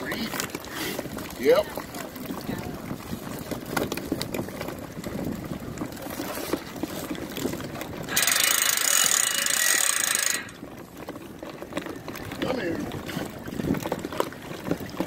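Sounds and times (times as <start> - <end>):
loud rapid ratchet rattle: 8.1 - 10.6.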